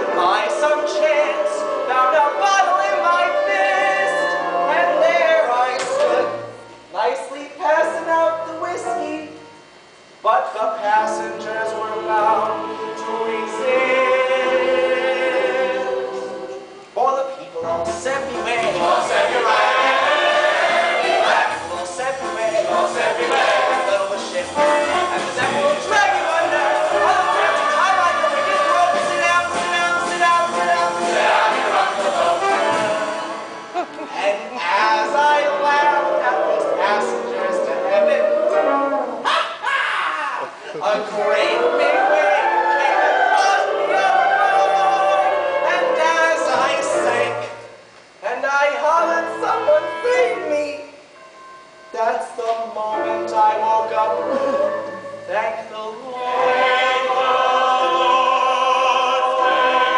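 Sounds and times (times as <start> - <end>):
man singing: 0.0 - 6.4, 21.4 - 33.3, 34.1 - 39.2
chorus singing: 0.0 - 7.0, 10.6 - 17.0, 17.6 - 39.7, 40.4 - 59.9
instrumental accompaniment: 17.6 - 39.2, 48.7 - 59.9.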